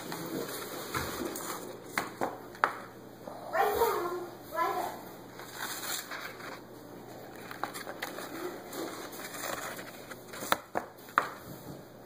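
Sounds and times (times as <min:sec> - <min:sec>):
paper rustling: 0:00.0 - 0:02.0, 0:05.3 - 0:11.5.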